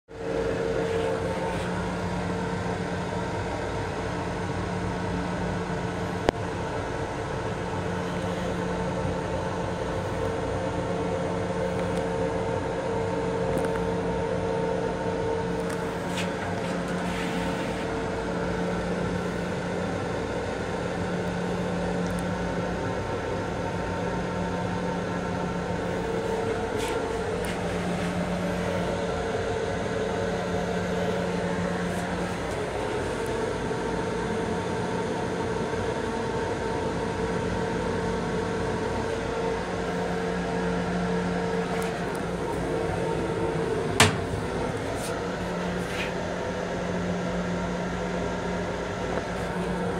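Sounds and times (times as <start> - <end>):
low electrical hum: 0.1 - 49.9
railcar mechanical rumble: 0.1 - 49.9.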